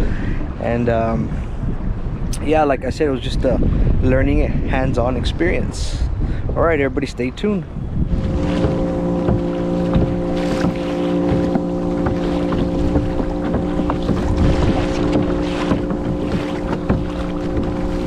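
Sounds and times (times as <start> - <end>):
wind on microphone: 0.0 - 18.0
steady motor hum: 7.8 - 18.0
water splashing on kayak hull: 8.0 - 18.0.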